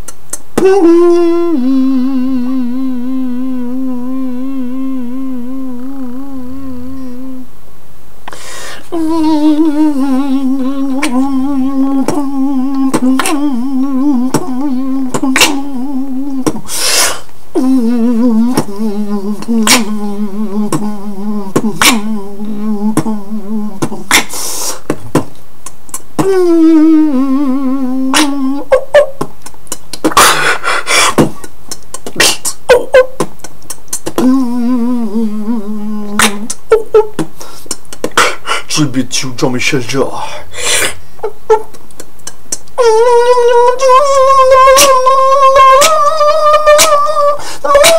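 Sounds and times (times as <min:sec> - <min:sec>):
mouth clicking beat: 0:00.0 - 0:01.0, 0:10.9 - 0:16.7, 0:17.6 - 0:27.0, 0:28.1 - 0:34.8, 0:36.1 - 0:38.6, 0:41.5 - 0:43.0, 0:43.7 - 0:47.9
man humming synth-like tones: 0:00.0 - 0:07.5, 0:08.9 - 0:16.7, 0:17.5 - 0:24.3, 0:25.9 - 0:30.1, 0:31.1 - 0:38.1, 0:41.2 - 0:47.9.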